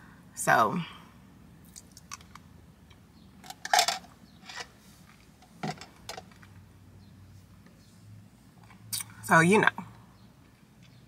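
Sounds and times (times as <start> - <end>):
faint steady hum: 0.0 - 11.0
handling clicks and knocks: 3.4 - 6.6.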